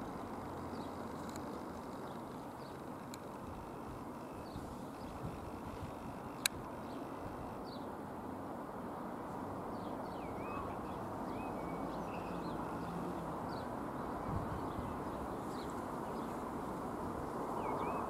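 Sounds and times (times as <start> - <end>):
distant propeller plane drone: 0.0 - 18.0
faint bird chirps: 17.6 - 18.0.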